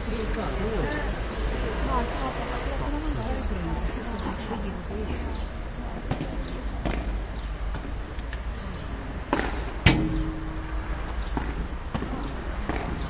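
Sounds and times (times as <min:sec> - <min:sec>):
ball struck by paddles: 0:09.3 - 0:13.0.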